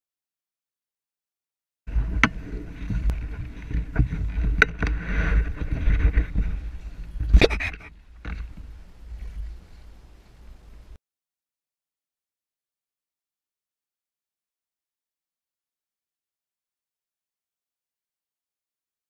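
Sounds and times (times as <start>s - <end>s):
wind buffeting microphone: 1.9s - 11.0s.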